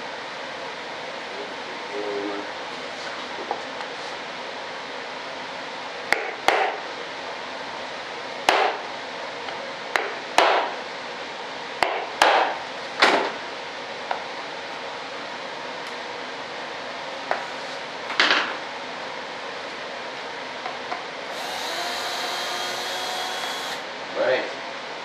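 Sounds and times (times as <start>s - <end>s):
sharp knocks on board: 8.5s - 8.8s.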